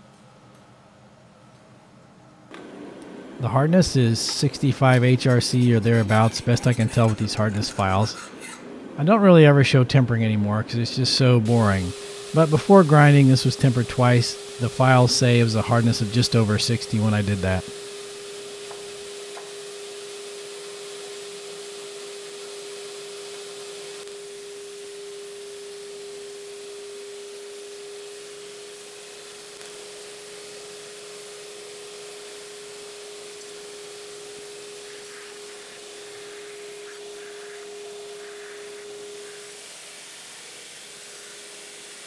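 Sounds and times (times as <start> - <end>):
belt grinder running: 11.4 - 42.0.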